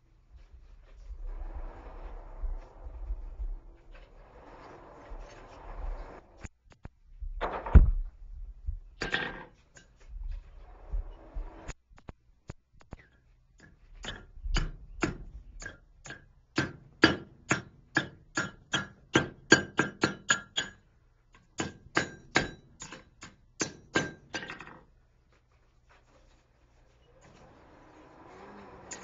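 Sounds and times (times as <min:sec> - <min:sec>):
hammer striking metal on anvil: 0:13.6 - 0:20.8, 0:21.6 - 0:24.5.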